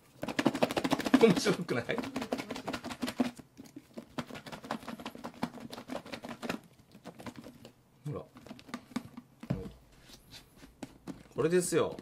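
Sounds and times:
food rattling in shaken plastic tub: 0.0 - 9.3.

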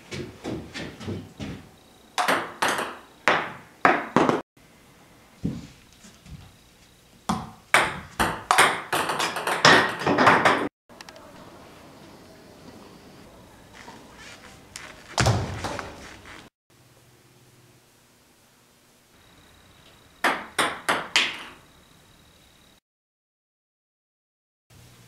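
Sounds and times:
faint room noise: 10.9 - 20.2.

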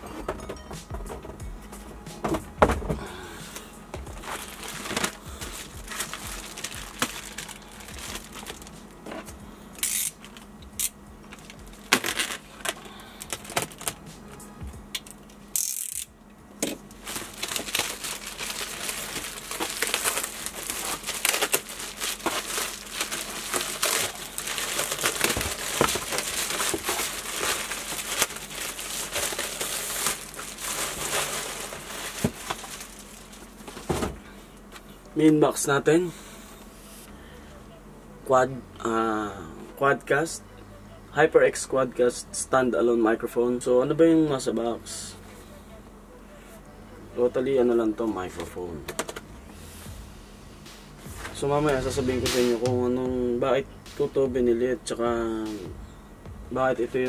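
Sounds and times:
plastic wrap crinkling and tearing: 4.1 - 14.0, 16.9 - 33.9.

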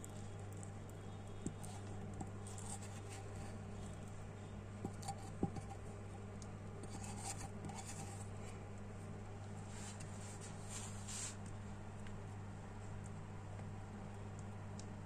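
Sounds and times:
steady low hum: 0.0 - 15.0
utensil scraping spread in pan: 1.5 - 4.1, 4.8 - 6.0, 6.8 - 8.6.

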